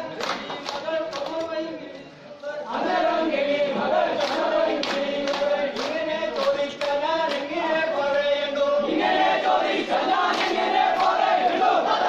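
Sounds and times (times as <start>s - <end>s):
men singing in unison: 0.0s - 12.0s
hand claps: 0.1s - 1.6s, 4.2s - 8.2s, 10.2s - 11.2s.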